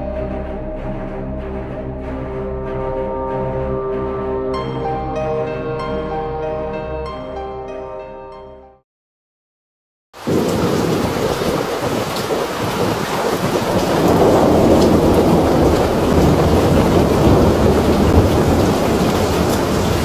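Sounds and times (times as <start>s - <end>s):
strong wind: 10.2s - 20.0s
torrential rain: 10.2s - 20.0s.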